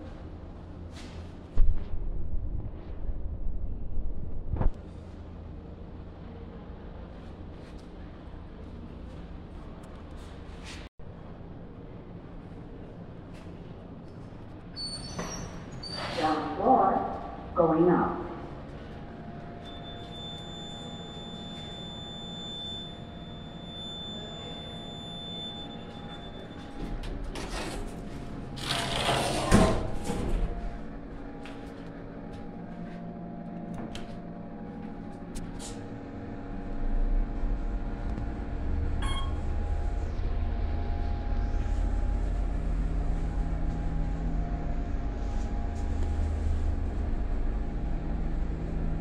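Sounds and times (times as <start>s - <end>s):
elevator hum: 0.0s - 49.0s
elevator car rumbling: 18.4s - 49.0s
elevator doors sliding clatter: 23.3s - 31.2s.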